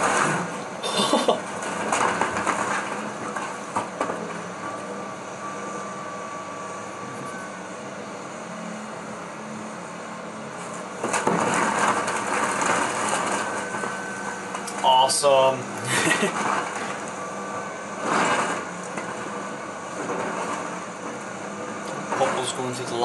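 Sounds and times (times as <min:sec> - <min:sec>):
excavator engine running: 0:00.0 - 0:23.0
timber cracking and crashing: 0:01.5 - 0:04.3, 0:11.0 - 0:13.9.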